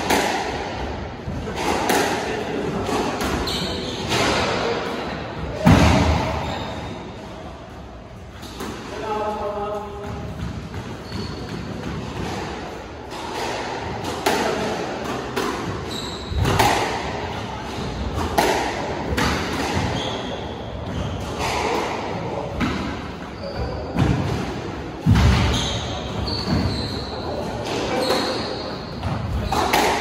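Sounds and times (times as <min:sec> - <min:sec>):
squash ball hits echoing: 0:00.0 - 0:04.8, 0:05.4 - 0:06.6, 0:09.9 - 0:27.0, 0:27.6 - 0:30.0
shoes squeaking on wooden floor: 0:10.8 - 0:11.6, 0:15.8 - 0:16.6, 0:25.5 - 0:29.6.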